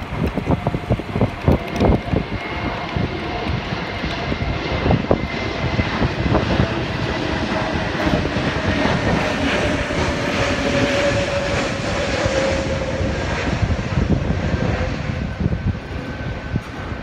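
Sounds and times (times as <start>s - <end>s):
jet passing low overhead: 0.0s - 17.0s.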